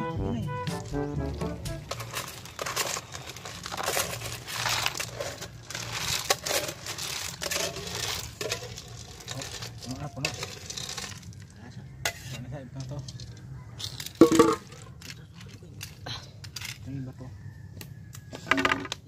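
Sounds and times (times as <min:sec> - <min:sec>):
metal spoon scraping metal pot: 0:01.9 - 0:11.3, 0:12.0 - 0:14.7.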